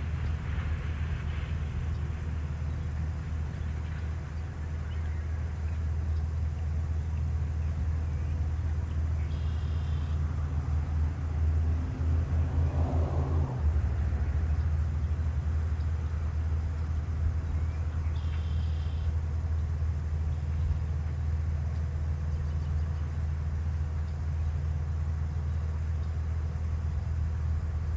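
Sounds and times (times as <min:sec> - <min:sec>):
heavy truck engine rumbling: 0:00.0 - 0:27.9.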